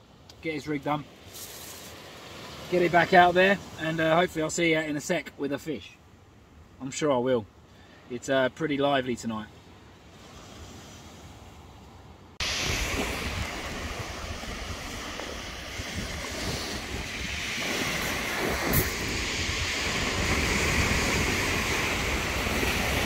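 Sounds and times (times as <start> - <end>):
waves on shingle beach: 0.4 - 4.6, 9.3 - 23.0
wind buffeting microphone: 12.4 - 23.0.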